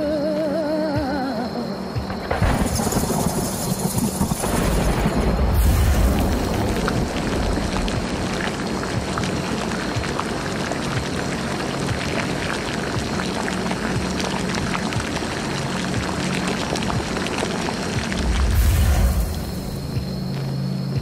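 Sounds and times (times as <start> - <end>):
liquid bubbling and gurgling: 5.5 - 20.0.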